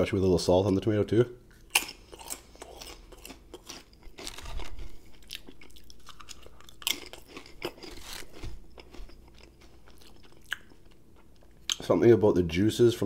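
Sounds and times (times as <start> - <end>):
crunching potato chips: 1.5 - 11.8.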